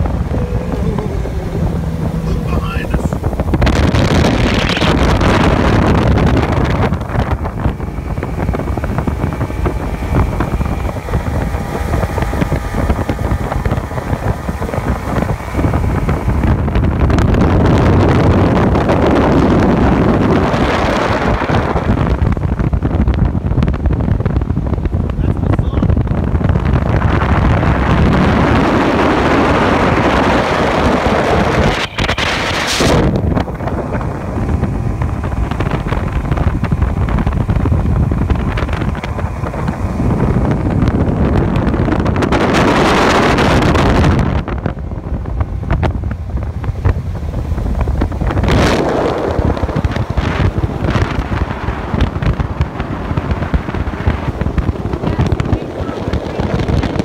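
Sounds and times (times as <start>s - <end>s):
boat hull on water: 0.0s - 57.0s
outboard motor running: 0.0s - 57.0s
wind buffeting microphone: 0.0s - 57.0s.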